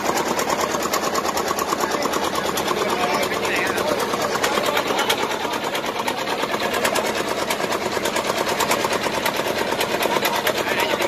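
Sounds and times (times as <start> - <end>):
small engine chugging: 0.0 - 11.0.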